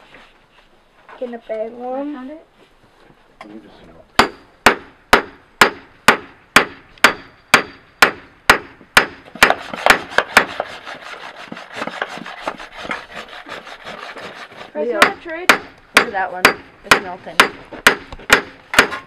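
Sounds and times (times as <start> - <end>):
hammer striking on an anvil: 4.2 - 10.5.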